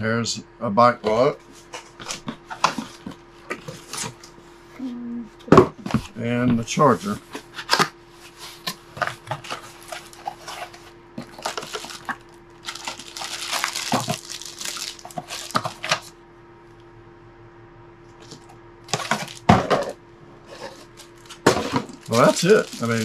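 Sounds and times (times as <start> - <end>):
plastic bag crinkling: 9.3 - 16.1, 18.2 - 19.6, 20.7 - 23.0
cardboard flaps rustling: 20.6 - 23.0.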